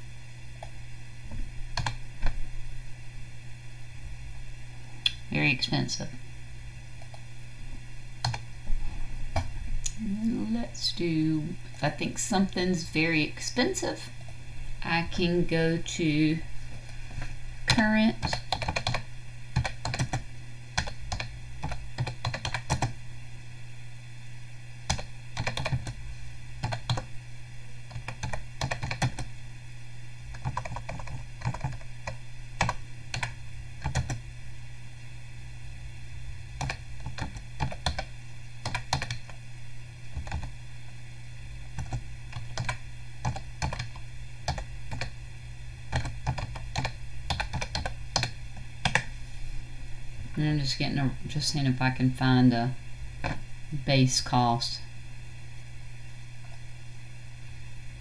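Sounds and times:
low steady hum: 0.0s - 58.0s
keyboard typing clicks: 1.8s - 2.0s, 8.2s - 8.4s, 17.7s - 19.0s, 20.8s - 23.0s, 24.9s - 26.0s, 27.9s - 29.3s, 30.3s - 34.2s, 36.6s - 39.4s, 41.8s - 45.1s, 45.9s - 49.1s.

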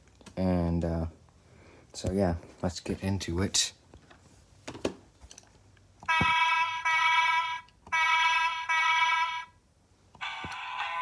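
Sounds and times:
electronic tune from toy speaker: 6.1s - 9.5s, 10.2s - 11.0s.

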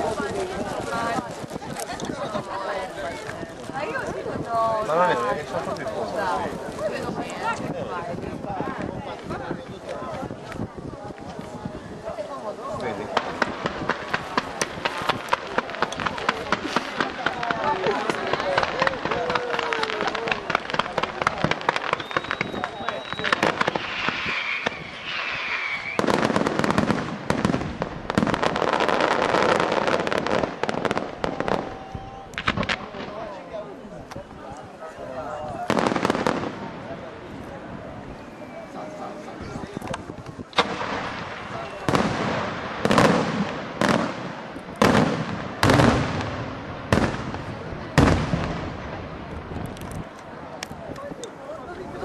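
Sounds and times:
firework crackle: 0.0s - 34.8s, 35.5s - 52.0s
firework whistle: 21.6s - 26.5s, 38.0s - 39.0s.

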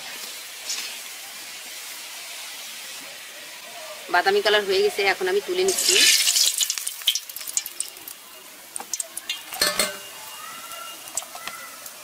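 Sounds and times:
oil sizzling and crackling: 0.0s - 12.0s
metal clinks on steel plate: 9.6s - 10.1s.

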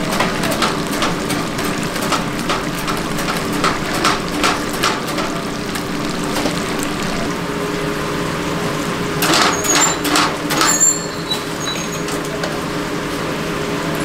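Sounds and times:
oil sizzling and popping: 0.0s - 13.3s.

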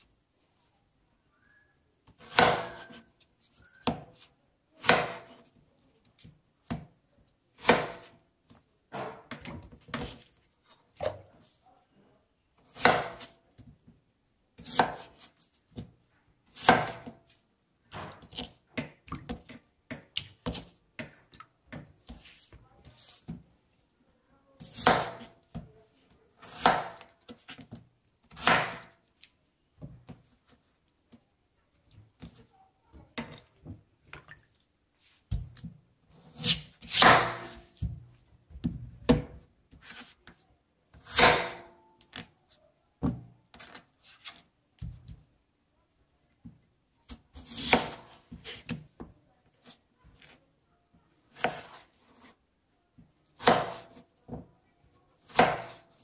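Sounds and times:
knife chopping on cutting board: 2.2s - 3.0s, 4.8s - 5.4s, 7.6s - 8.2s, 12.8s - 13.3s, 16.6s - 17.2s, 24.7s - 25.7s, 26.4s - 27.7s, 28.3s - 28.9s, 36.3s - 38.0s, 41.0s - 41.7s, 47.1s - 48.8s, 51.3s - 52.3s, 53.4s - 54.0s, 55.3s - 55.9s.

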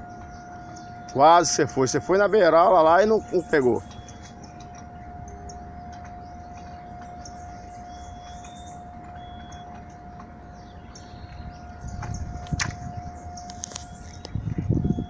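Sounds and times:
low outdoor rumble: 0.0s - 15.0s
steady high-pitched hum: 0.0s - 15.0s.

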